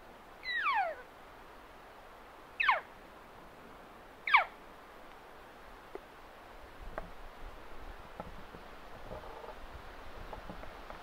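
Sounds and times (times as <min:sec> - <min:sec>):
elk calling: 0:00.4 - 0:01.1, 0:02.6 - 0:02.9, 0:04.2 - 0:04.6.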